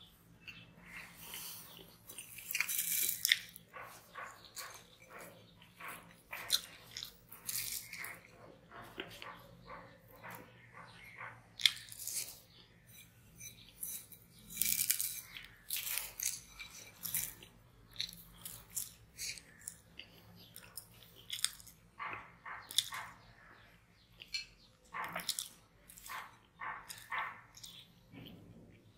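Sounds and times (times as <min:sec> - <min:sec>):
person chewing and smacking: 0:00.3 - 0:28.9.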